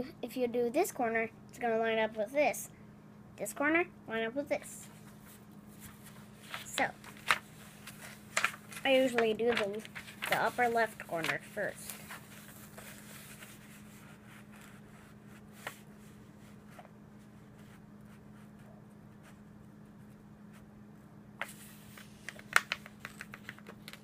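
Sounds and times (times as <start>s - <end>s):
paper crackling: 5.0s - 16.9s, 21.4s - 24.0s
paper rustling: 5.0s - 16.9s, 21.4s - 24.0s.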